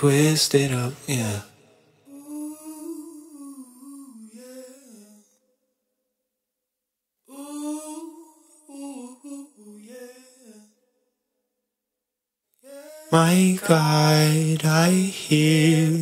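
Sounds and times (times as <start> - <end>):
person humming a melody: 2.1 - 5.2, 7.3 - 10.6.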